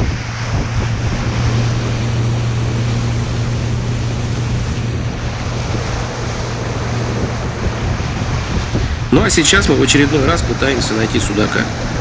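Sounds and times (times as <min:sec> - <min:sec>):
motorboat engine humming: 0:00.0 - 0:12.0
water noise: 0:00.0 - 0:12.0
wind noise: 0:00.0 - 0:12.0.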